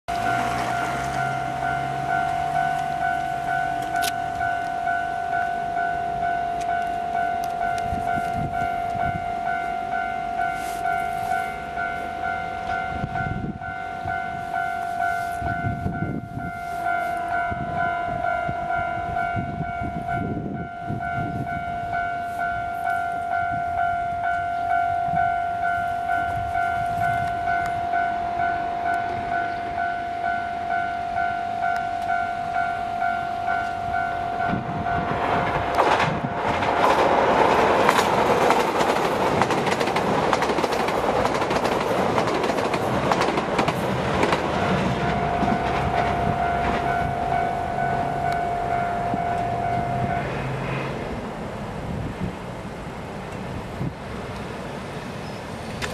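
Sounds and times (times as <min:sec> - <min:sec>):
level crossing bell ringing: 0:00.1 - 0:35.2, 0:43.4 - 0:50.7
passing train wheels and engine: 0:00.1 - 0:55.9.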